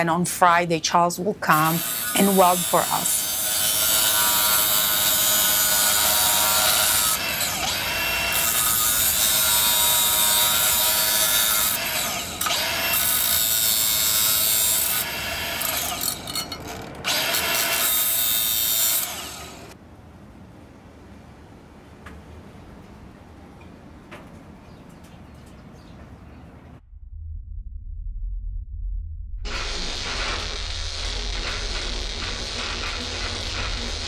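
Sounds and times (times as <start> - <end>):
angle grinder grinding steel: 1.5 - 19.8, 29.5 - 34.0.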